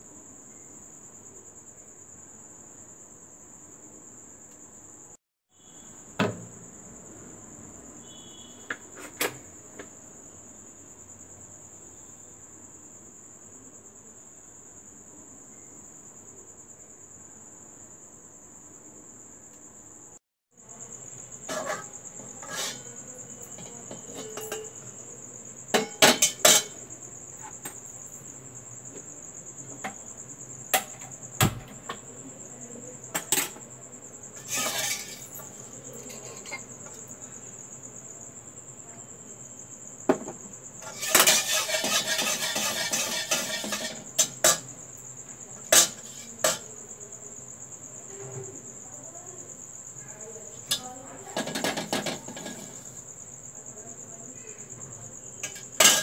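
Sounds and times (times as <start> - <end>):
cookware clinking: 21.5 - 24.8, 25.7 - 26.8, 34.4 - 37.0, 40.8 - 44.7, 45.7 - 46.7, 51.4 - 52.8, 55.4 - 56.0.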